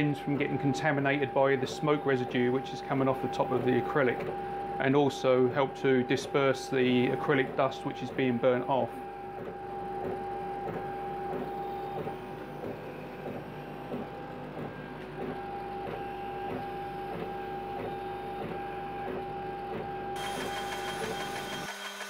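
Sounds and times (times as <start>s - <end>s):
stepper motors whining: 20.2s - 22.0s.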